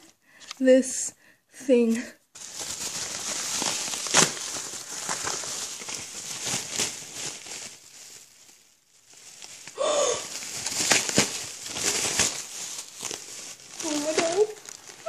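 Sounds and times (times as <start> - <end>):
plastic packaging rustling: 2.3 - 15.0.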